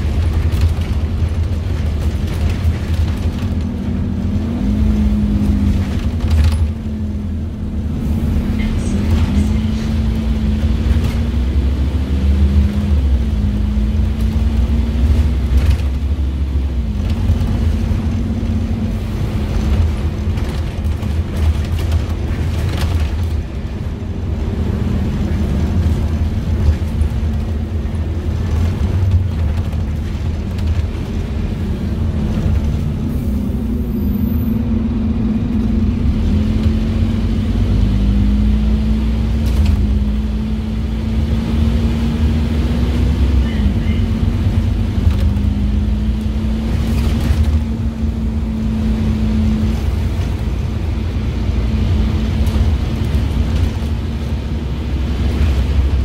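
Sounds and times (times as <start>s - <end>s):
bus diesel engine droning: 0.0s - 56.0s.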